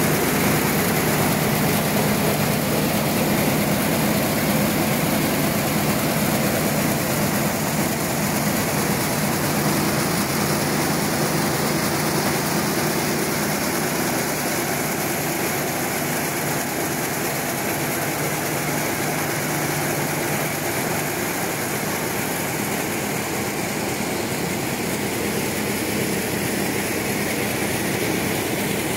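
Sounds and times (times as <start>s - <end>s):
machine hum and hiss: 0.0s - 28.9s.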